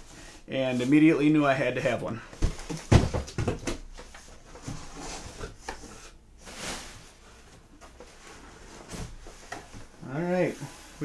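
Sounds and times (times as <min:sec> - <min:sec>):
cardboard knocks: 0:02.4 - 0:03.9
cardboard scraping rustle: 0:04.0 - 0:11.0.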